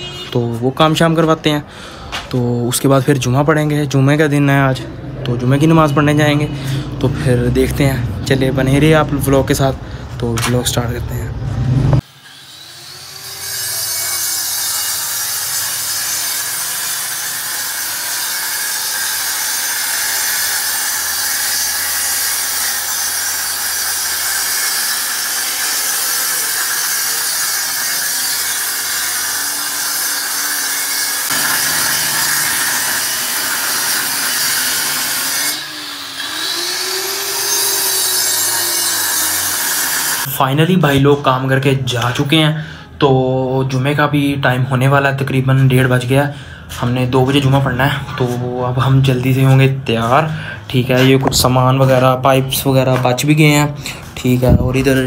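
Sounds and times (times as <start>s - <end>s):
electric cutter grinding into wall: 12.0s - 40.3s.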